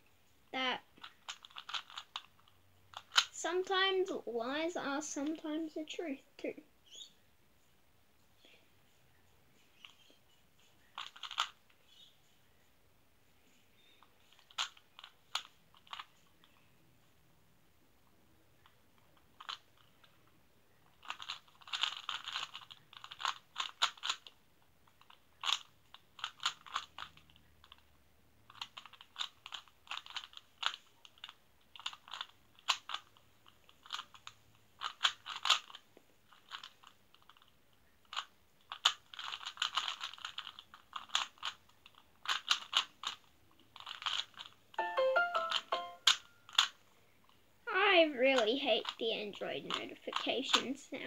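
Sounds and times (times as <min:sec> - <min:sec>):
rubik's cube clicking turns: 0:00.9 - 0:03.4, 0:10.8 - 0:12.1, 0:13.8 - 0:16.6, 0:18.6 - 0:27.9, 0:28.5 - 0:46.8, 0:49.7 - 0:50.7.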